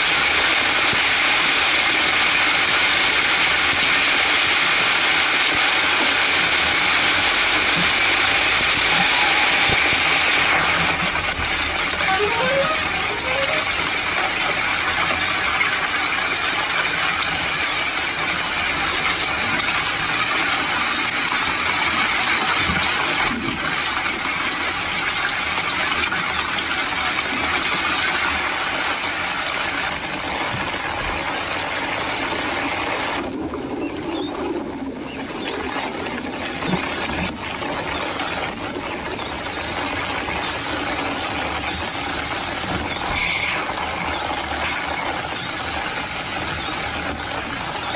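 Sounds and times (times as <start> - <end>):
rain and tyres on wet road: 0.0 - 47.9.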